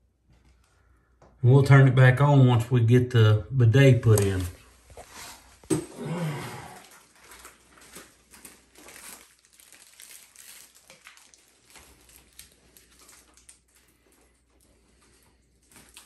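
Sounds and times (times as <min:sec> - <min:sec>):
plastic packaging crinkling: 0:06.6 - 0:16.0.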